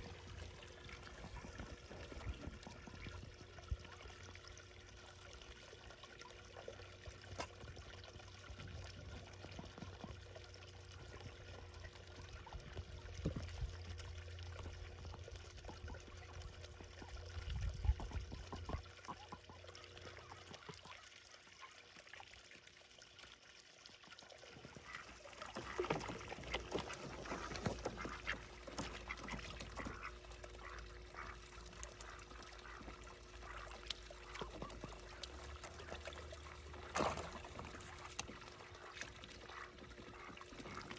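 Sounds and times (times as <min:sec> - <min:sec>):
fountain splashing and trickling: 0:00.0 - 0:40.9
ducks quacking: 0:24.8 - 0:40.9.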